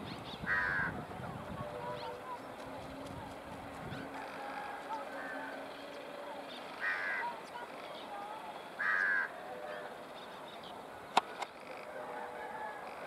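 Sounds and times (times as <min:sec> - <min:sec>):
crow cawing: 0:00.5 - 0:01.0, 0:04.4 - 0:05.6, 0:06.7 - 0:07.5, 0:08.8 - 0:10.0.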